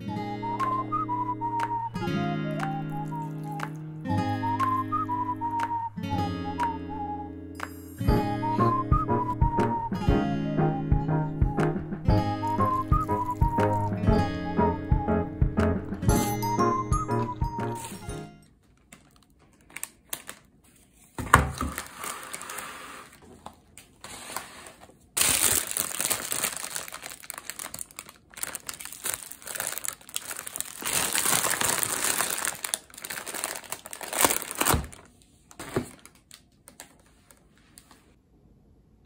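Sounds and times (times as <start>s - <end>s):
plastic bags crinkling: 18.5s - 38.0s.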